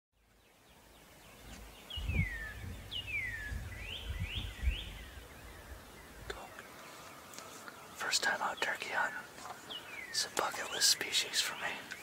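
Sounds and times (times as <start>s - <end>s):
low rumble: 1.9s - 6.4s
songbird whistling: 2.0s - 5.7s.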